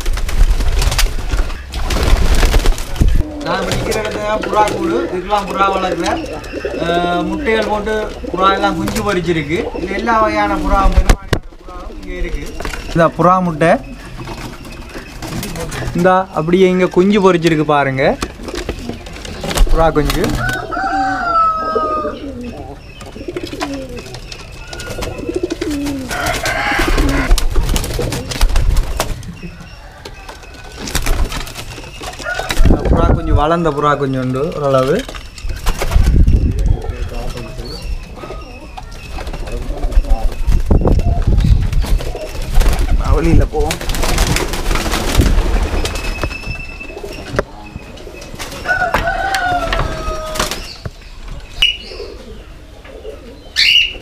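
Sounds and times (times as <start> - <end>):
wings fluttering: 0.0 - 9.6, 23.0 - 37.6, 38.8 - 47.4, 48.3 - 50.9
pigeons cooing: 0.0 - 54.0.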